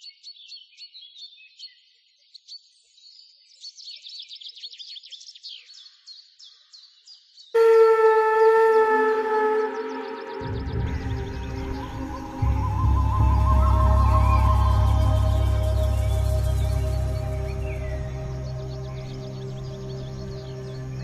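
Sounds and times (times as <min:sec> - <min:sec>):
birds chirping: 0:07.6 - 0:21.0
loud horn-like wind instrument tone: 0:07.6 - 0:21.0.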